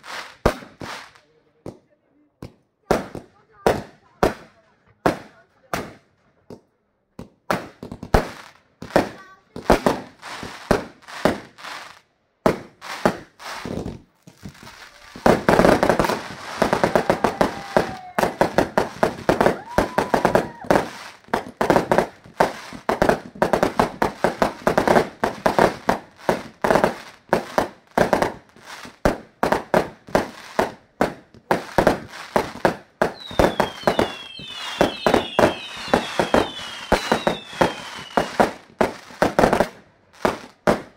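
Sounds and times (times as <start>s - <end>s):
fireworks bursting with crackle: 0.0s - 40.9s
falling firework whistles: 16.1s - 21.2s, 33.1s - 38.6s.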